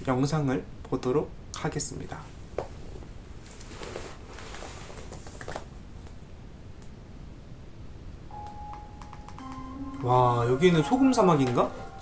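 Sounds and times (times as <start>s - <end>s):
low room hum: 0.0s - 12.0s
faint rustling: 2.2s - 5.7s
soft clicks: 8.4s - 10.1s.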